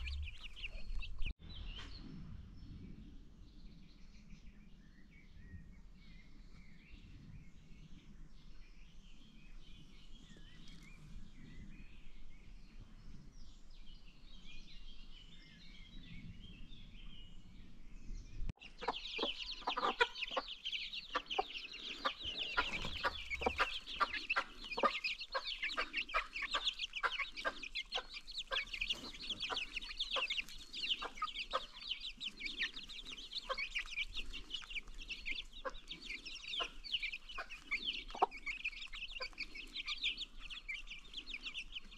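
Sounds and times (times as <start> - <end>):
baby chicks peeping: 0.0 - 2.0, 8.9 - 12.1, 18.5 - 41.9
low clucks: 18.6 - 31.9.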